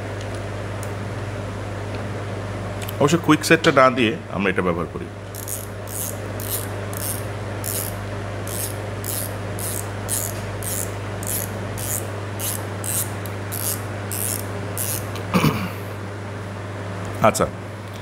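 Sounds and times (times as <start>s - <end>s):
steady low hum: 0.0s - 18.0s
cap rubbing on reel spool: 5.3s - 15.1s.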